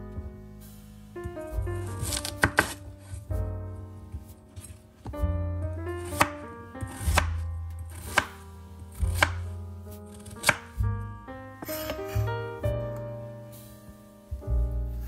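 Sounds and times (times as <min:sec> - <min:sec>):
background music: 0:00.0 - 0:15.0
knife chopping on wooden board: 0:02.0 - 0:02.8, 0:06.0 - 0:08.4, 0:09.0 - 0:09.5, 0:10.1 - 0:10.8, 0:11.6 - 0:12.0.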